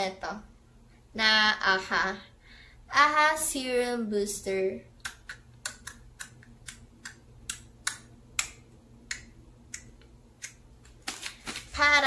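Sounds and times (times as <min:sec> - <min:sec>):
plastic pouch clicking and crackling: 0:10.4 - 0:11.8.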